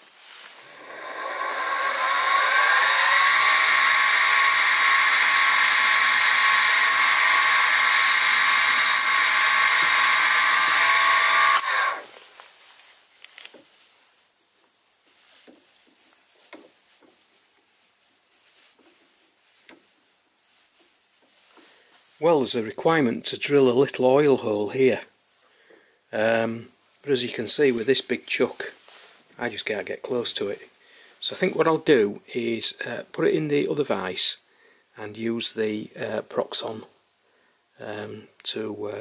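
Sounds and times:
mill motor whining: 0.0 - 12.1.

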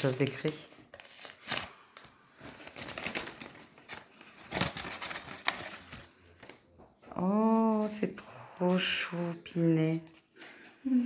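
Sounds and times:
envelope tearing: 0.0 - 6.5.

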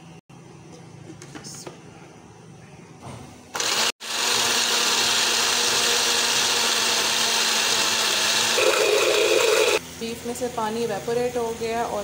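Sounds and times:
electric blender motor running: 3.6 - 9.8.

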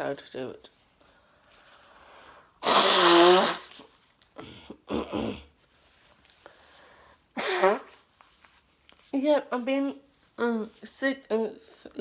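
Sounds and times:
person blowing nose: 2.5 - 6.0, 7.3 - 8.1.

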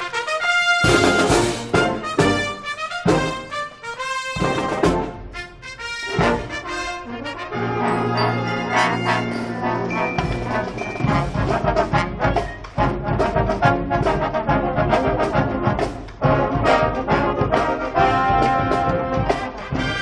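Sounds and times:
trombones and trumpets: 0.0 - 20.0
wind band playing: 0.0 - 20.0
drum beat: 0.8 - 3.7, 4.4 - 5.3, 10.0 - 20.0.

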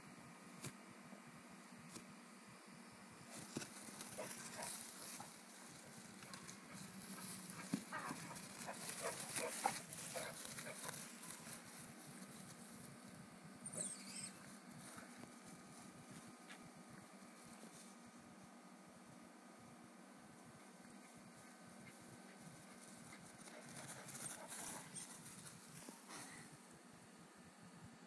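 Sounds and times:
puppy vocalizing: 13.7 - 14.5.

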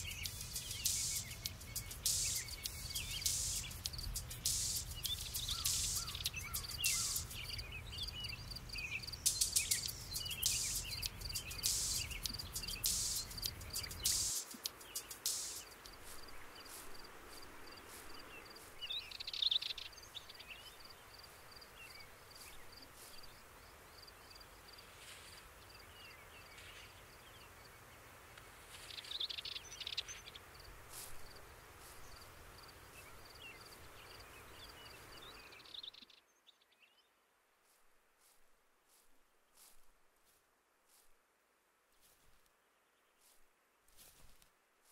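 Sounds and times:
birds chirping: 0.0 - 24.8, 31.2 - 37.0
low hiss: 0.0 - 36.0.

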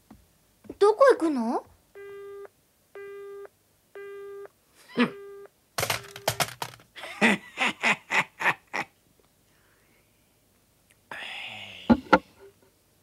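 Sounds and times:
telephone busy tone: 2.0 - 4.5, 5.1 - 6.5
sharp clicks: 5.8 - 6.8.

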